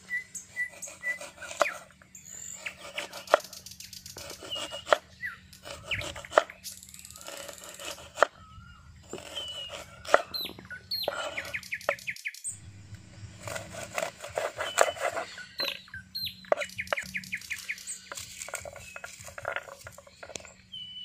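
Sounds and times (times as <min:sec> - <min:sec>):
birds chirping: 0:00.0 - 0:21.0
cleaver chopping on wooden board: 0:00.7 - 0:01.8, 0:02.7 - 0:03.5, 0:04.2 - 0:05.0, 0:05.6 - 0:06.5, 0:07.2 - 0:08.4, 0:09.1 - 0:12.0, 0:13.4 - 0:15.8.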